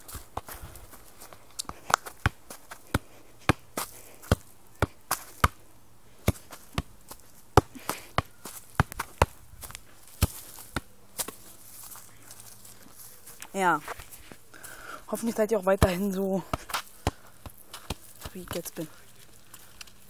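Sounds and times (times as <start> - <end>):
football kicked thuds: 7.6 - 11.4.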